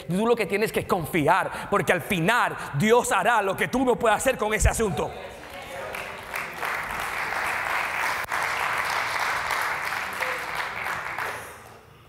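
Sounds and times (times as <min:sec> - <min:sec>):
congregation clapping: 0:05.3 - 0:11.9.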